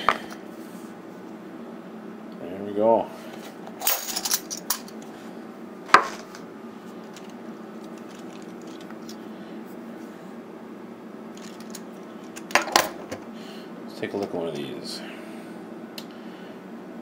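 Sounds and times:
steady low hum: 0:00.0 - 0:17.0
coins clicking: 0:03.8 - 0:04.9.

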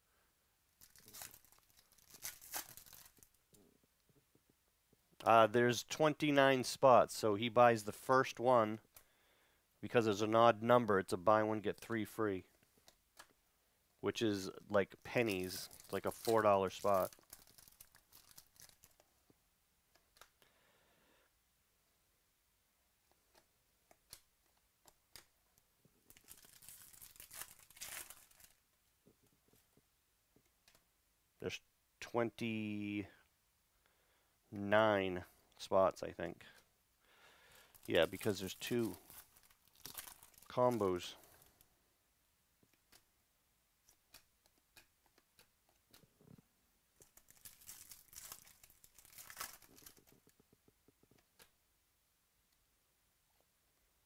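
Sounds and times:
plastic wrapper tearing and crinkling: 0:00.8 - 0:03.4, 0:15.2 - 0:19.0, 0:26.1 - 0:28.6, 0:37.7 - 0:41.4, 0:47.0 - 0:50.4.

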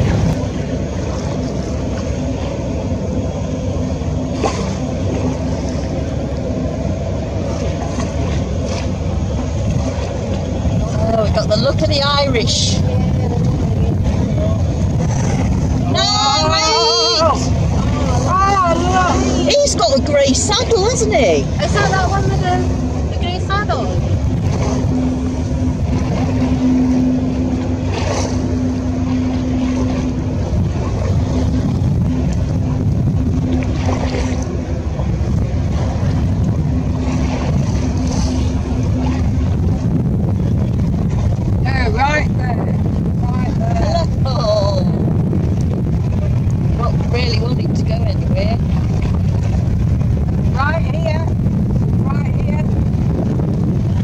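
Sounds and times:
boat engine running: 0:00.0 - 0:54.0
wind buffeting microphone: 0:00.0 - 0:54.0.

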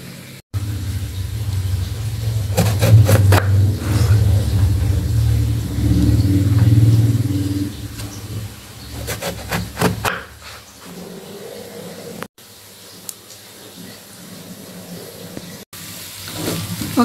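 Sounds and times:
motor engine humming: 0:00.5 - 0:10.4.

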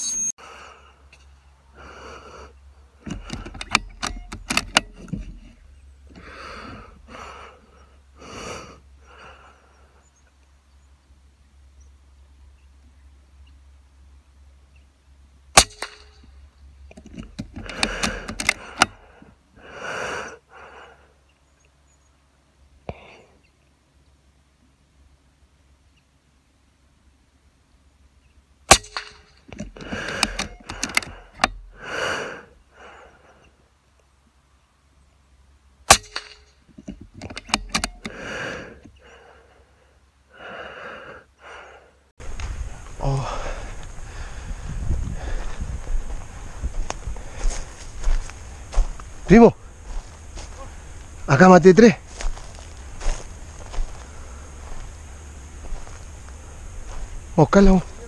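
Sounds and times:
close breaths: 0:00.4 - 0:04.7, 0:05.3 - 0:10.4, 0:17.0 - 0:21.6, 0:22.8 - 0:23.5, 0:29.3 - 0:33.8, 0:36.9 - 0:51.3, 0:52.1 - 0:57.2
sharp clicks: 0:03.0 - 0:05.2, 0:16.9 - 0:19.1, 0:28.7 - 0:31.8, 0:35.9 - 0:38.2
air rifle crack: 0:15.6 - 0:16.4, 0:17.0 - 0:19.2, 0:28.7 - 0:32.2, 0:35.8 - 0:38.9.

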